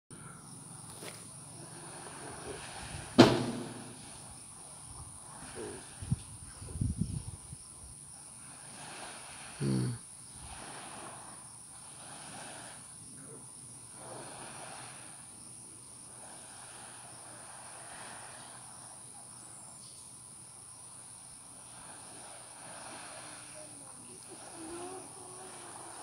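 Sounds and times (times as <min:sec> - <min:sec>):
insect chirring: 0:00.2 - 0:26.0
soft rushing noise: 0:00.9 - 0:07.4.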